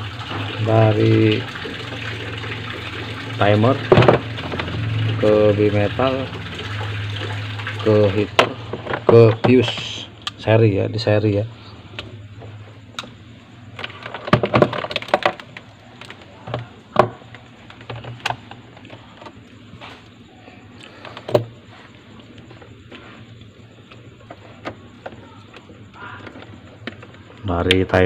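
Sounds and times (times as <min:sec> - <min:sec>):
low hum: 0:01.4 - 0:09.4.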